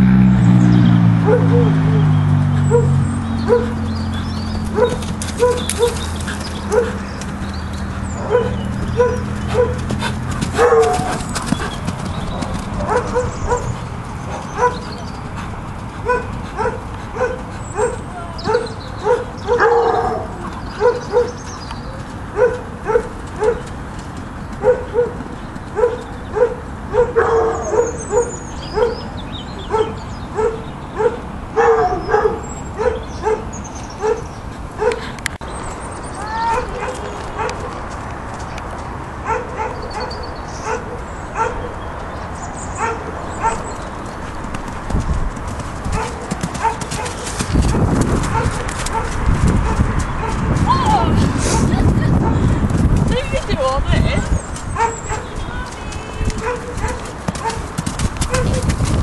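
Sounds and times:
dog drawn-out cries: 1.2 - 2.1, 2.7 - 7.1, 8.2 - 9.8, 10.5 - 11.7, 16.1 - 21.4, 36.2 - 37.7.

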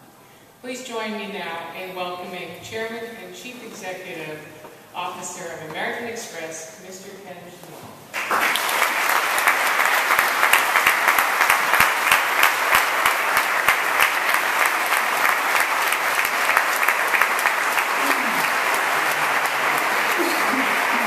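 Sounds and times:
audience applauding: 8.2 - 21.0.

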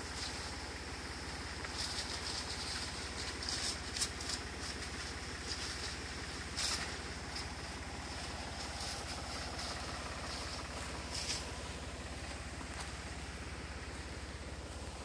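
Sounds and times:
small sprayer engine running: 0.0 - 15.0.

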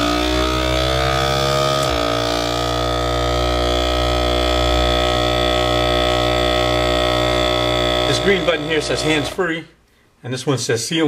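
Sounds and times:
vacuum sealer pump humming: 0.0 - 9.4.

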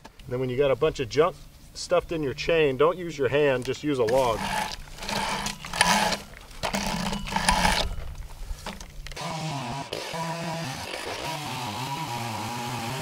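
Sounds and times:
chainsaw chain scraping a log: 4.0 - 13.0
chainsaw running: 4.1 - 13.0.

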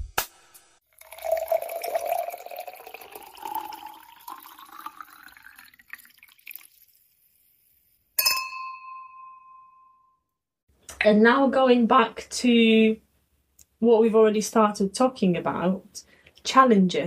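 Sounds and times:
wine pouring into glass: 0.9 - 7.9
glasses clinking: 1.0 - 6.6, 8.2 - 9.7.

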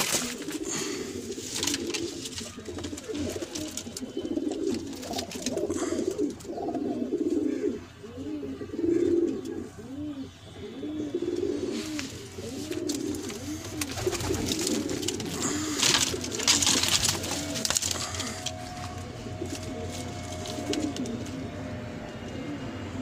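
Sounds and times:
wing flutter and rustling: 0.0 - 5.6, 11.7 - 21.4
pigeons cooing: 0.0 - 23.0.

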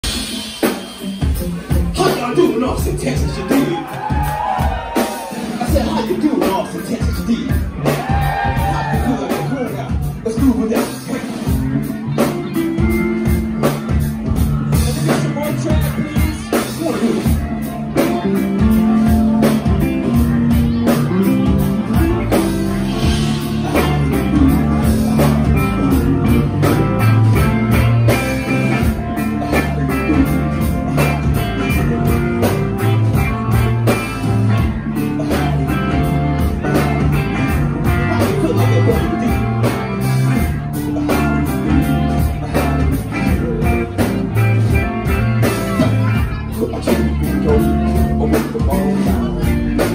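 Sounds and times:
drums: 0.0 - 49.9
electric guitar: 0.0 - 49.9
person singing: 13.2 - 33.9, 34.5 - 49.9.

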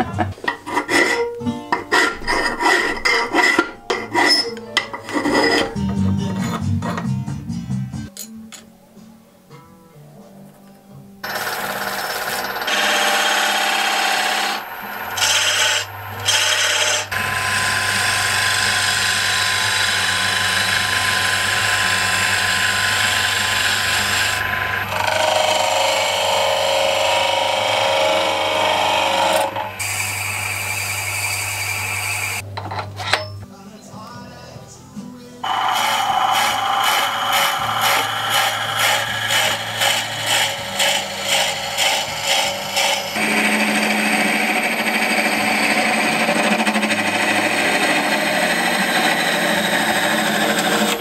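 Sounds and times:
lathe motor hum: 11.2 - 32.4, 35.4 - 51.0
lathe tool cutting wood: 11.2 - 32.4, 35.4 - 51.0.

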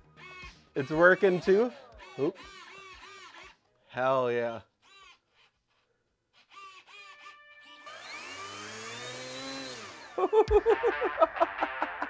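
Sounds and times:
electric motor whining with propeller: 6.6 - 10.2.

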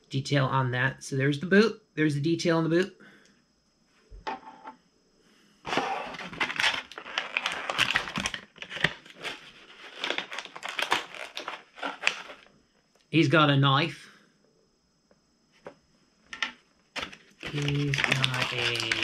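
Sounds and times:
plastic packaging crinkling: 5.7 - 12.5, 17.0 - 19.0.

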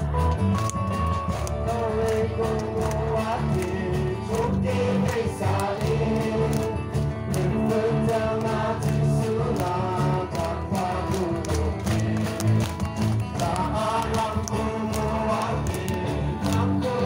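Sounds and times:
live band playing: 0.0 - 9.4
crowd singing: 1.3 - 17.0.

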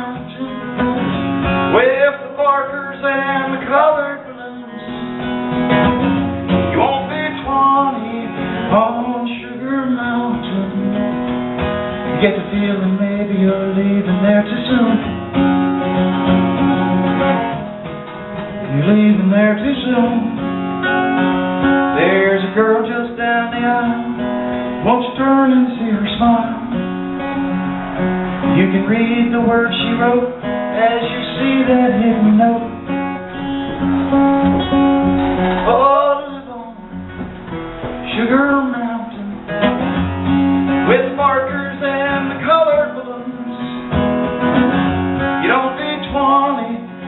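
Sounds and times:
man singing: 0.0 - 5.3, 6.6 - 11.2, 12.1 - 15.2, 18.6 - 20.5, 21.8 - 26.9, 28.4 - 39.9, 40.7 - 44.1, 45.3 - 47.0
acoustic guitar: 0.0 - 47.0.

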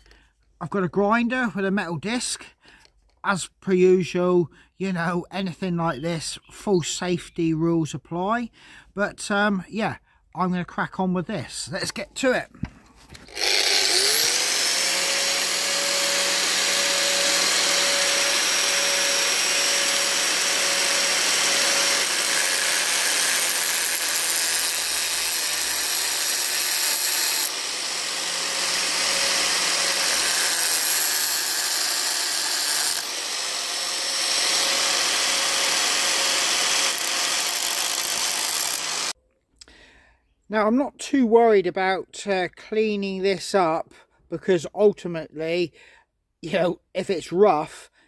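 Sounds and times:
angle grinder cutting steel rod: 13.2 - 39.2.

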